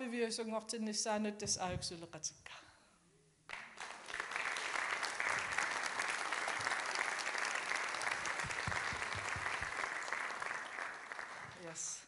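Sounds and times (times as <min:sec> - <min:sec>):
audience applauding: 0:03.5 - 0:12.0.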